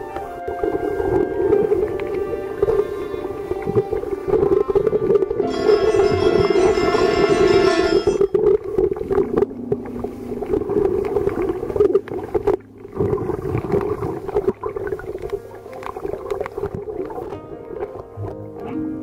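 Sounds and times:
underwater churning of water: 0.0s - 18.7s
small underwater clicks: 0.1s - 5.5s, 8.2s - 18.8s.

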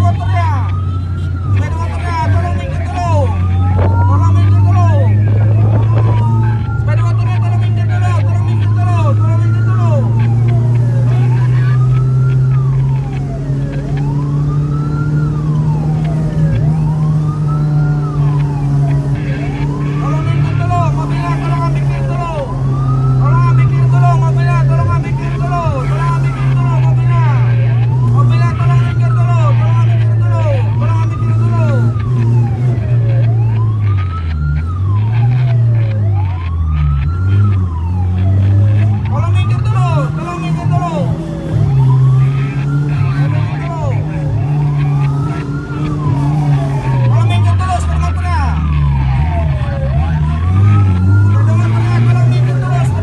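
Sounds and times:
emergency siren wailing: 0.0s - 53.0s
vehicle engine drone: 0.0s - 53.0s.

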